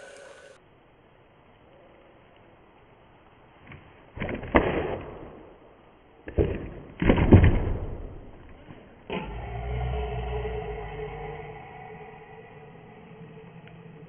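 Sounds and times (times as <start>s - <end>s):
skateboard landing on grass: 3.6s - 5.7s, 6.3s - 8.8s
skateboard tail pop: 3.7s - 5.6s, 6.3s - 8.2s.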